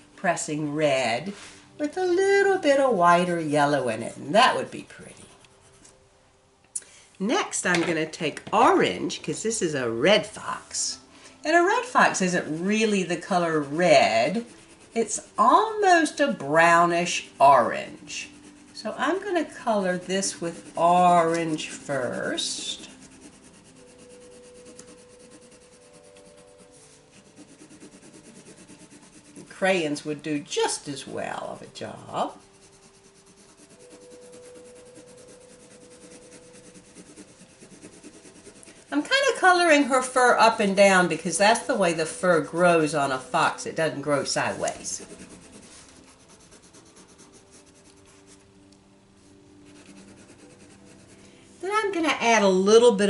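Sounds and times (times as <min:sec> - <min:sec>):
colored pencil rubbing on paper: 0:02.2 - 0:05.9, 0:11.7 - 0:48.5, 0:49.5 - 0:51.2.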